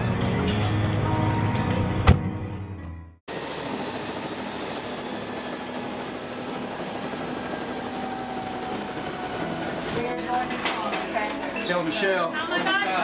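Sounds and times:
helicopter turbine whine: 3.3 - 10.1.

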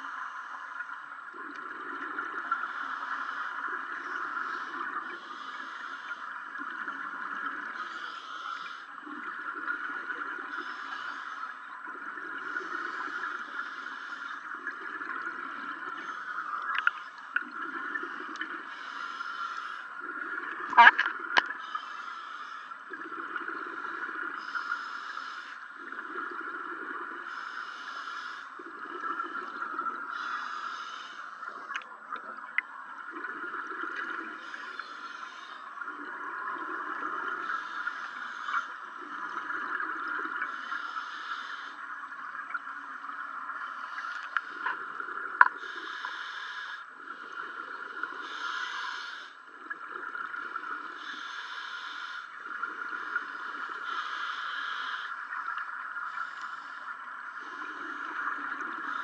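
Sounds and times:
diver breathing through regulator: 45.5 - 49.4, 53.3 - 55.2.

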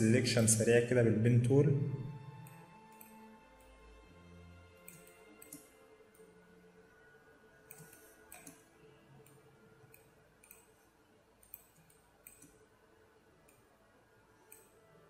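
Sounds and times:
faint computer mouse clicks: 4.8 - 6.3, 7.7 - 10.8, 11.4 - 12.6, 14.5 - 14.8.

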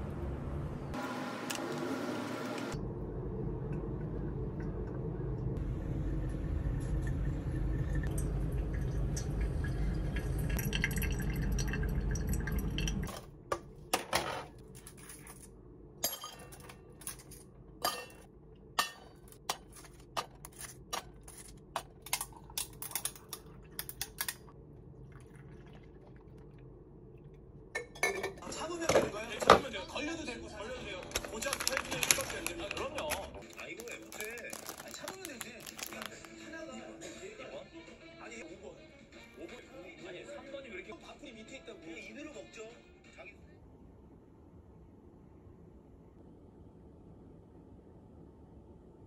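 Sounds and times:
cups and glassware clinking: 16.0 - 24.4, 27.8 - 29.7.

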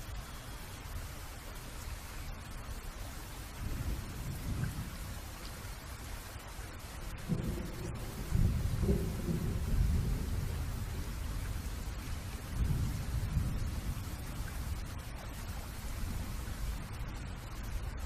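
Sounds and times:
steady rain: 0.0 - 18.0
low rumbles of thunder: 3.6 - 5.3, 7.2 - 18.0.

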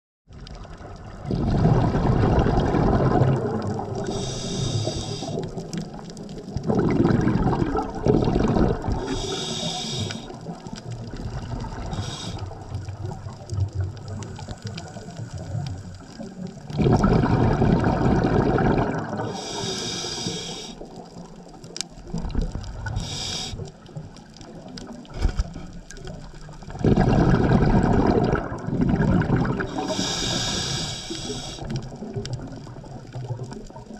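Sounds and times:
exhaled air bubbling: 0.3 - 33.9
regulator inhalation hiss: 4.0 - 5.6, 9.0 - 10.5, 11.8 - 12.6, 19.2 - 21.0, 22.9 - 23.7, 29.6 - 31.8.

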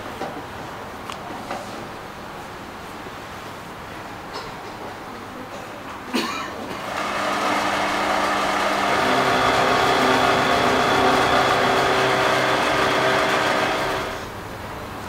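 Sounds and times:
noodle machine hum and whir: 6.7 - 14.8.

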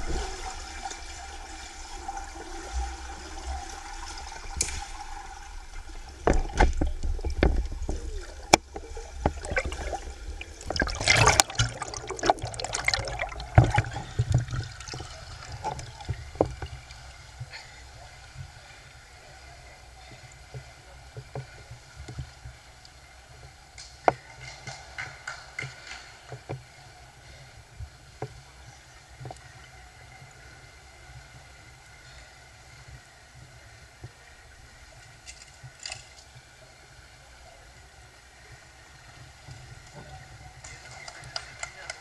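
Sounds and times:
splashing water: 0.0 - 18.6
underwater clicks and bubbling: 0.0 - 18.6, 39.2 - 42.0
underwater low rumble: 0.0 - 23.7
gentle lapping water: 0.0 - 42.0.

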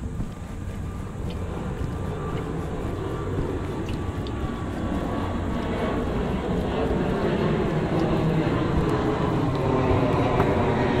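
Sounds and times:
faint thin whine: 0.0 - 11.0
low engine rumble: 0.0 - 11.0
wind buffeting microphone: 0.0 - 11.0.

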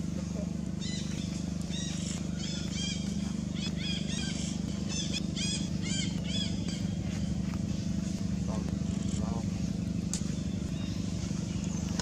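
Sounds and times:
steady low hum: 0.0 - 12.0
animal chirping calls: 0.3 - 7.8.

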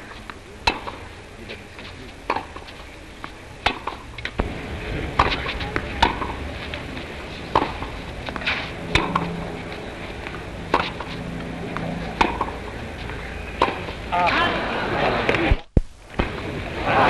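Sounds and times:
tennis ball pocks: 0.3 - 1.1, 2.2 - 4.5, 5.2 - 6.5, 7.5 - 9.4, 10.2 - 12.7, 13.6 - 14.0.

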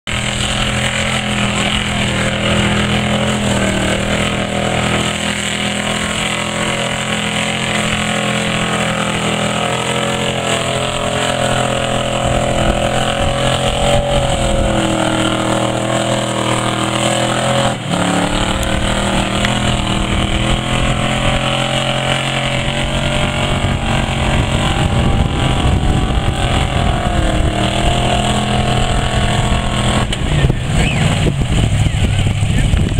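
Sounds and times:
pickup engine revving hard: 0.0 - 32.9.

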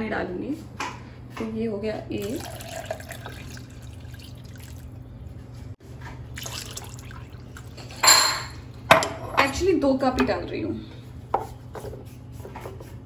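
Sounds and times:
water trickling into bowl: 2.2 - 5.0, 6.3 - 8.6.

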